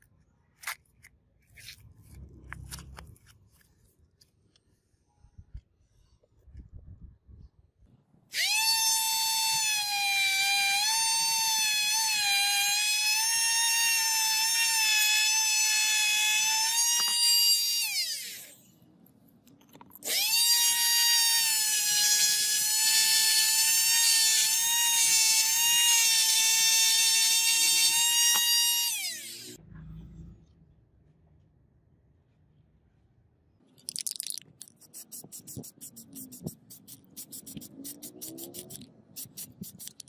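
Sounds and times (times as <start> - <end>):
electric motor whining: 20.1 - 29.6.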